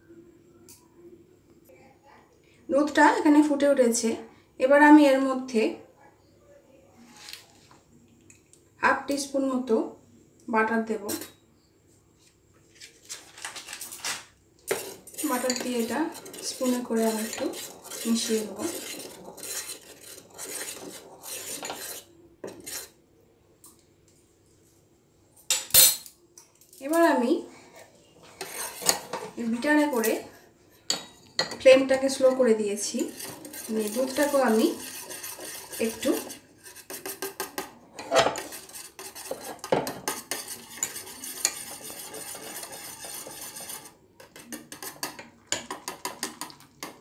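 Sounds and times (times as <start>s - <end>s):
spoon scraping saucepan: 11.0s - 11.4s, 12.8s - 23.0s, 26.9s - 47.0s
whisk knocking on pan: 14.7s - 22.8s, 33.0s - 37.7s, 38.4s - 47.0s.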